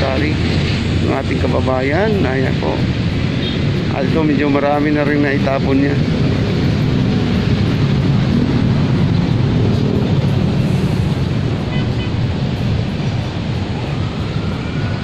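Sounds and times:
loud low rumbling: 0.0s - 11.7s.

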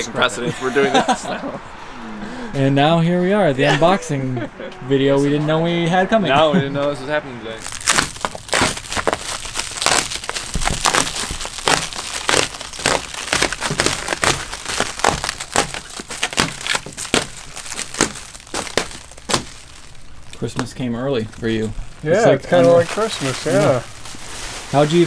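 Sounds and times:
plastic wrap crinkling: 7.6s - 25.0s
box cutter slitting plastic: 7.8s - 19.6s.

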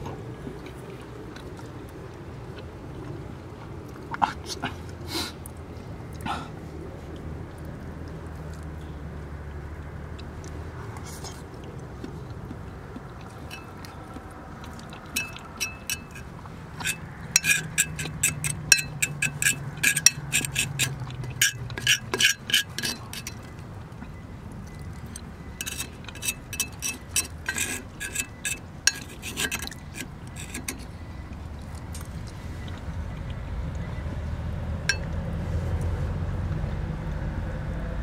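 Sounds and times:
fork clinking on skillet: 13.5s - 13.8s, 15.1s - 23.5s, 25.1s - 30.9s.

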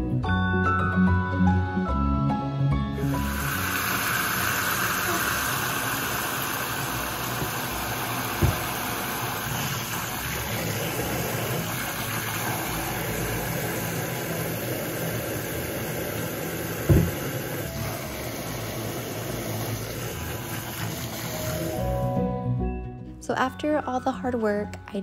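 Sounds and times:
faucet spraying into a metal sink: 3.0s - 22.0s.

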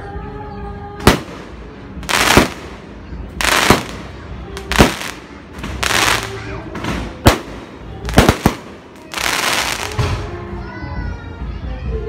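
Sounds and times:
fireworks crackling: 1.0s - 10.3s
fireworks bangs: 1.0s - 10.4s.

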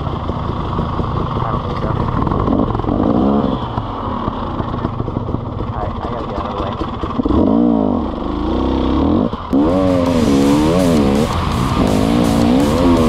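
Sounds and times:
dirt bike engine revving: 1.3s - 4.9s, 6.4s - 13.0s
background music with beat: 9.6s - 13.0s.

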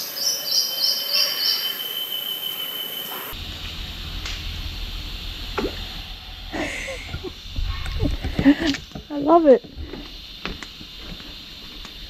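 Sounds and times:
bird chirping: 0.0s - 12.0s
insect drone: 0.0s - 12.0s
low rumble: 3.3s - 12.0s.

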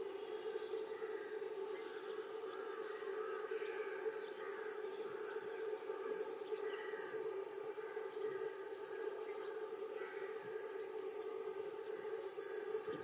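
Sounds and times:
high insect drone: 0.0s - 13.0s.

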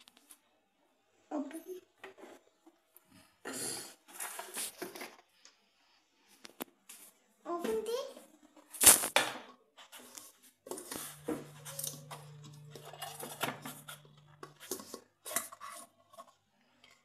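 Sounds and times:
plastic lid scraping on steel jar: 10.7s - 17.0s.

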